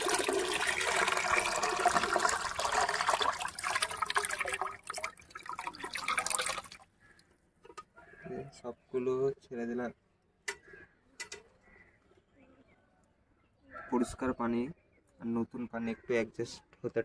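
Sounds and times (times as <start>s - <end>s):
water pouring and splashing: 0.0s - 6.9s.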